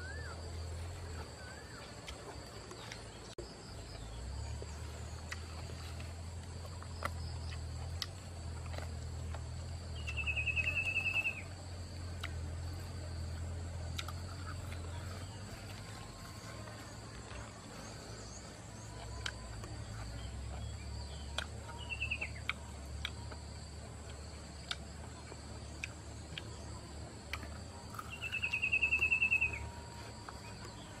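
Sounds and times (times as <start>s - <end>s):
rapid trilled call: 10.0s - 11.5s, 28.0s - 29.7s.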